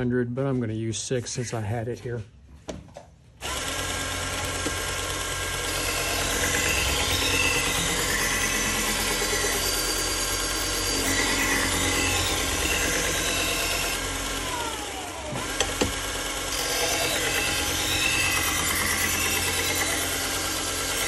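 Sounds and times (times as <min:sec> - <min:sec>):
belt sharpener running: 0:03.4 - 0:21.0
sharp clicks: 0:04.2 - 0:05.2.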